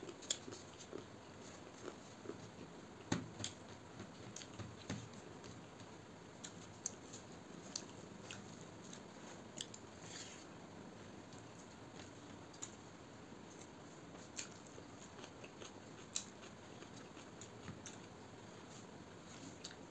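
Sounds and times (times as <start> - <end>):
person chewing: 0.0 - 2.7, 4.2 - 4.6, 6.4 - 10.5, 13.5 - 19.9.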